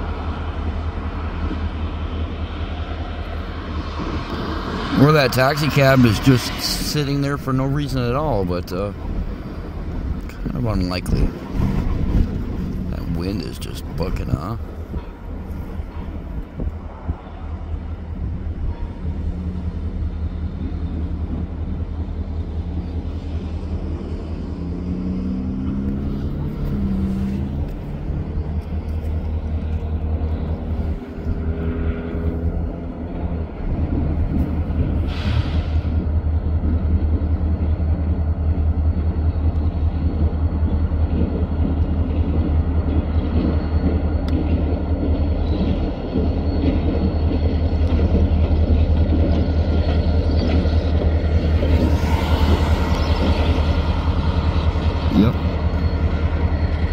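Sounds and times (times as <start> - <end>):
diesel locomotive engine: 0.0 - 56.9
wind buffeting microphone: 8.8 - 22.6.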